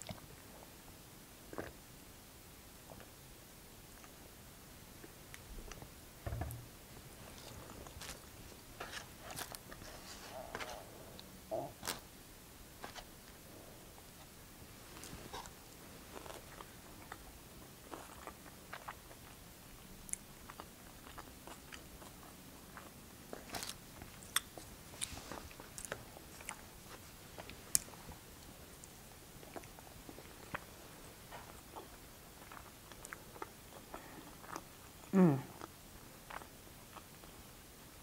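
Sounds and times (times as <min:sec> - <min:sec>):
chewing and mouth sounds: 0:15.0 - 0:37.4.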